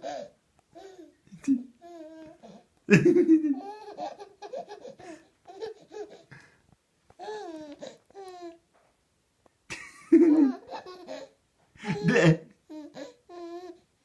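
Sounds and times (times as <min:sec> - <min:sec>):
baby laughing and babbling: 0:00.0 - 0:02.7, 0:03.4 - 0:06.4, 0:07.2 - 0:08.6, 0:10.3 - 0:13.9.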